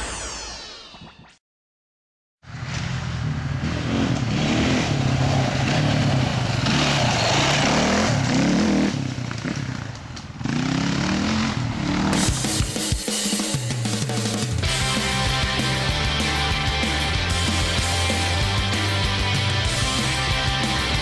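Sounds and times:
dirt bike engine revving: 0:02.5 - 0:13.0.

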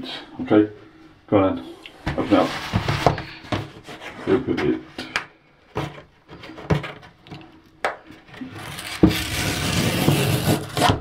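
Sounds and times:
cardboard tear strip ripping: 0:08.5 - 0:11.0.

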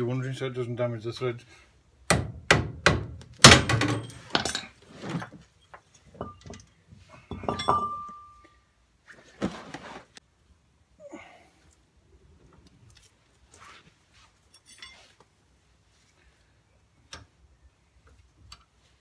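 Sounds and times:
metal knocks and clinks ringing: 0:05.9 - 0:08.6, 0:14.5 - 0:15.1.

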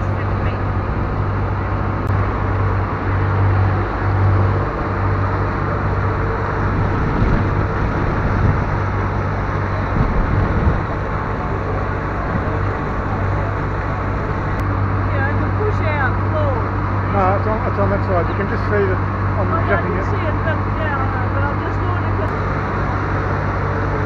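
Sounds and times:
churning wake: 0:00.0 - 0:24.0
ferry engine hum: 0:00.0 - 0:24.0
wind: 0:00.0 - 0:24.0.

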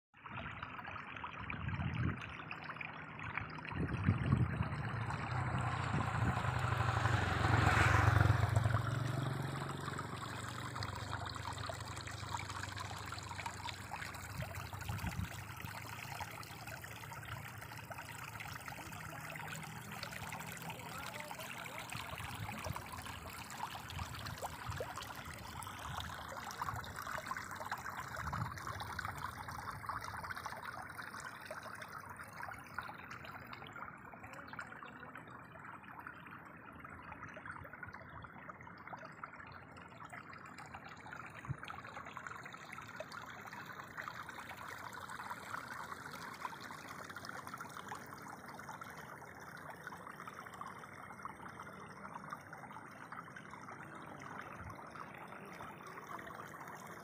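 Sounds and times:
water trickling: 0:00.2 - 0:57.0
low rumble: 0:03.7 - 0:12.8.

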